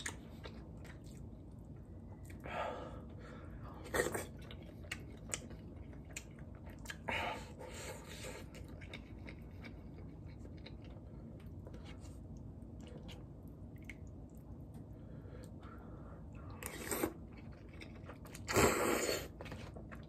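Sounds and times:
close chewing: 4.0 - 7.1, 8.0 - 14.4, 16.6 - 18.6.

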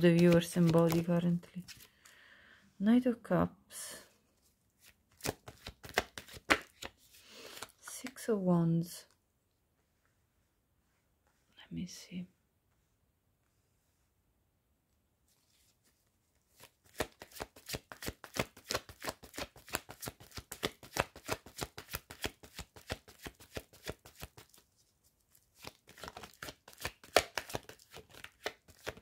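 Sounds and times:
cards being shuffled: 0.0 - 2.1, 4.8 - 7.9, 15.3 - 29.0.

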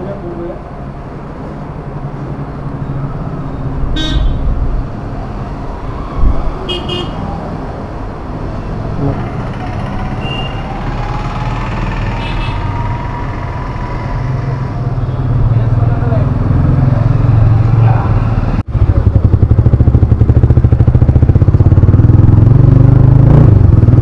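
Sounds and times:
street traffic rumbling: 0.0 - 24.0
vehicle horn toots: 4.0 - 4.4, 6.7 - 7.2, 12.2 - 12.8.

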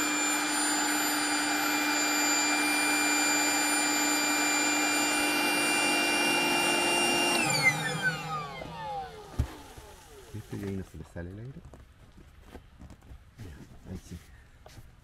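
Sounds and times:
electric air pump running: 0.0 - 10.8.

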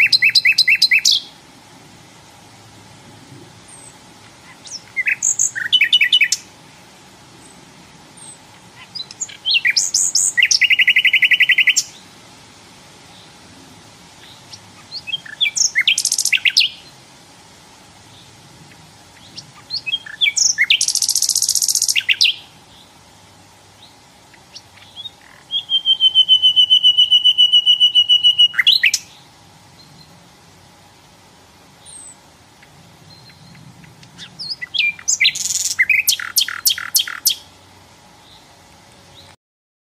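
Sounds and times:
bird whistled notes: 0.0 - 1.3, 4.6 - 6.4, 8.2 - 11.9, 25.0 - 29.1, 34.2 - 37.4
bird chirping and trilling: 0.0 - 1.4, 3.7 - 6.5, 8.2 - 12.0, 14.2 - 16.9, 18.1 - 22.9, 23.8 - 30.2, 31.8 - 37.5.

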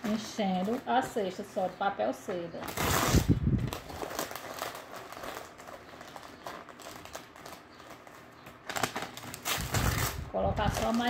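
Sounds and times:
paper crumpling and crinkling: 2.6 - 11.0.

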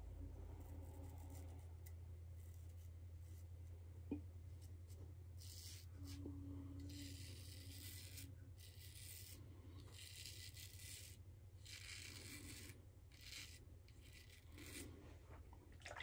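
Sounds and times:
low steady hum: 0.0 - 16.0
razor scraping stubble: 5.4 - 15.1.

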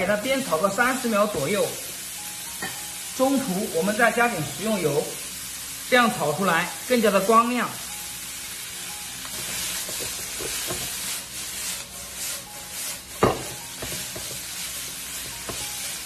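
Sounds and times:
bean sprouts sizzling in a wok: 0.0 - 16.0
spatula scraping wok: 9.2 - 16.0.

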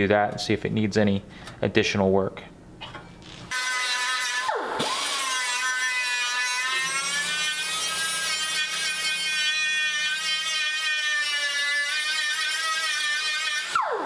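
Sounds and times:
handheld grinder whining: 3.5 - 14.0.

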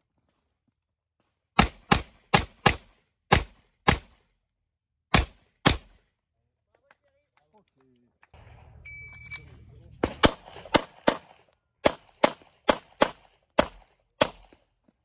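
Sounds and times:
pistol shots: 1.6 - 4.2, 5.1 - 6.0, 8.4 - 14.7.

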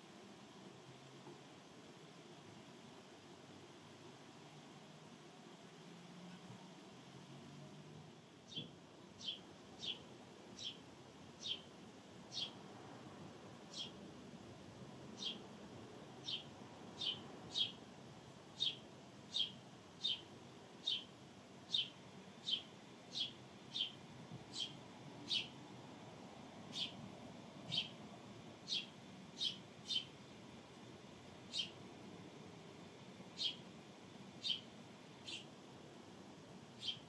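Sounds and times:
sparrow chirping: 8.5 - 10.0, 10.6 - 10.8, 11.4 - 11.7, 12.3 - 12.6, 13.7 - 14.0, 15.2 - 15.4, 16.2 - 17.8, 18.6 - 21.1, 21.7 - 25.6, 26.7 - 27.0, 27.6 - 28.0, 28.6 - 30.2, 31.5 - 31.8, 33.4 - 33.7, 34.4 - 35.5, 36.8 - 37.0.

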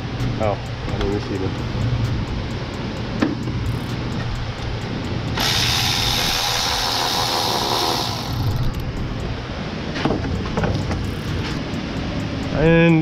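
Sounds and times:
constant low hum: 0.0 - 13.0
pneumatic tool hissing: 5.4 - 8.6.

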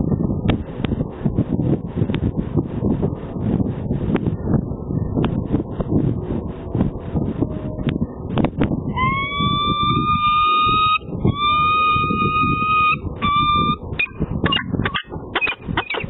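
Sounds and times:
wind rumble on microphone: 0.0 - 16.0
falcon calling: 8.9 - 16.0
short sharp bird sounds: 15.4 - 16.0.

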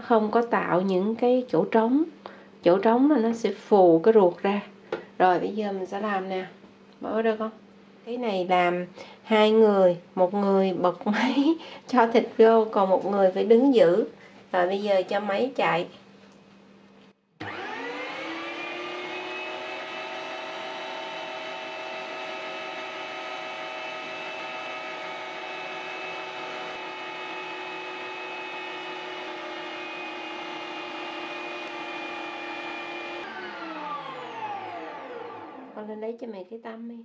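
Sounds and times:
electric meat grinder running: 17.4 - 35.9.

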